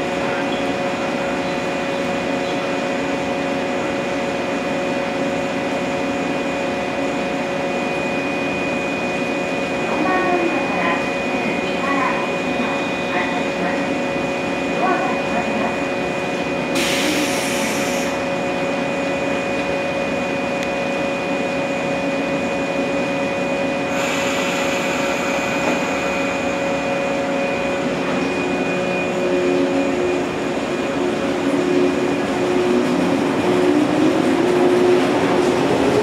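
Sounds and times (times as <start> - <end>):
electric train humming: 0.0 - 36.0
train doors closing: 16.4 - 18.8, 23.9 - 36.0
compressed-air hiss: 16.8 - 18.2.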